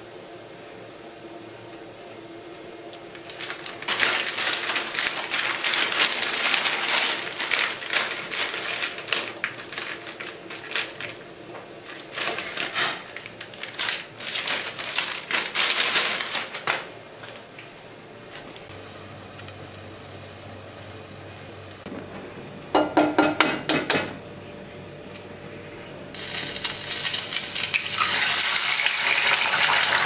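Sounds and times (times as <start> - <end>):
plastic wrapper crinkling: 3.0 - 17.6, 26.2 - 30.0.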